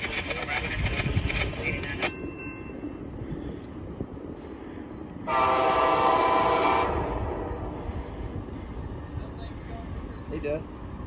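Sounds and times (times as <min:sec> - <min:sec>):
train air horn blast: 0:05.2 - 0:07.9
faint low rumble: 0:06.8 - 0:11.0.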